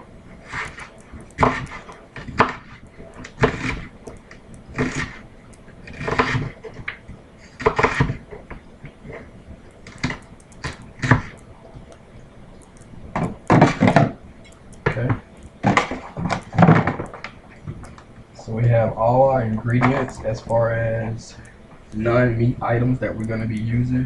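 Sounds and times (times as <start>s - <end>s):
knife slicing onion on board: 0.5s - 3.9s, 4.8s - 5.2s.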